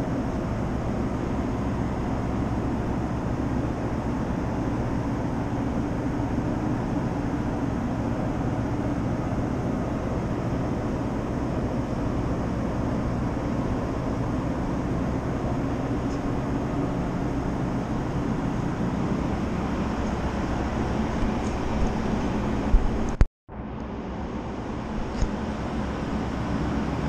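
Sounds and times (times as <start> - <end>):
ferry engine drone: 0.0 - 27.0.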